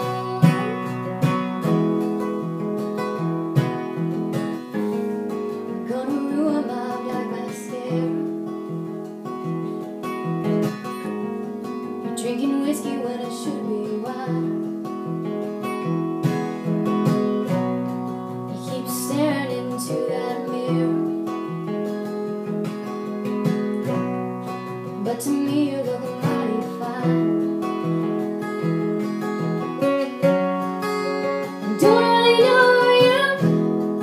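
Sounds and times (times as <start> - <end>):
woman singing: 0.0 - 1.9, 4.8 - 8.9, 12.0 - 14.9, 18.3 - 21.8, 24.7 - 28.1, 31.2 - 34.0
acoustic guitar: 0.0 - 34.0.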